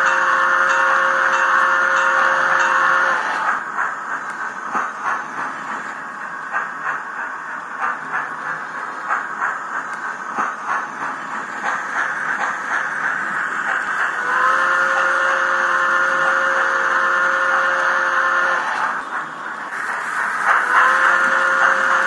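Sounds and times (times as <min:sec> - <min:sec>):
model train steam chuffs: 0:00.0 - 0:22.0
multi-tone steam whistle: 0:14.2 - 0:18.9, 0:20.6 - 0:22.0.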